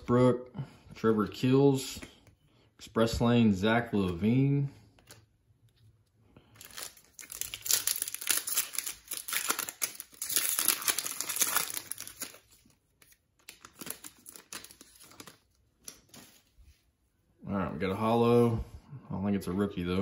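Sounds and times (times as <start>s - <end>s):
foil wrapper crinkling: 6.4s - 16.1s
foil tearing: 6.6s - 12.5s.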